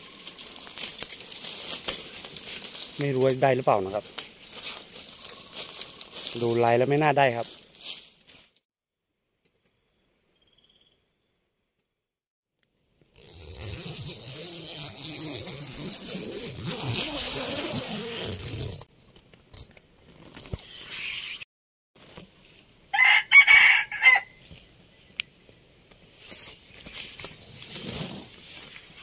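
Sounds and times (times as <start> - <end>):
rooster crowing: 22.9 - 24.4.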